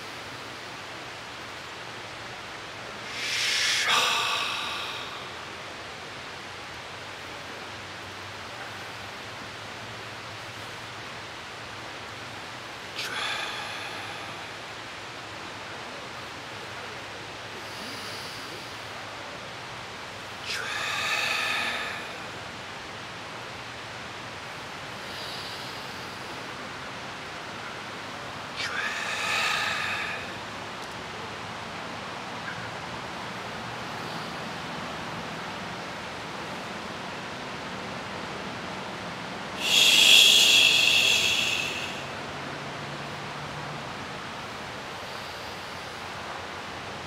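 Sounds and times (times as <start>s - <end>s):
faint higher hiss: 0.0s - 47.0s
steady breathy hiss: 0.0s - 47.0s
man's voiced exhale: 3.0s - 5.5s, 13.0s - 14.7s, 20.4s - 22.5s, 28.6s - 30.6s, 39.6s - 42.6s.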